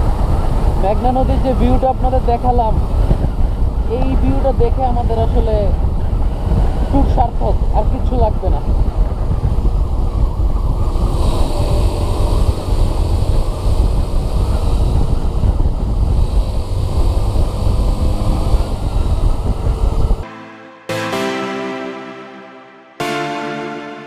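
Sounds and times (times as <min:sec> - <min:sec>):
wind rumble on microphone: 0:00.0 - 0:20.3
motorcycle engine drone: 0:00.0 - 0:21.0
electronic piano music: 0:20.2 - 0:24.0.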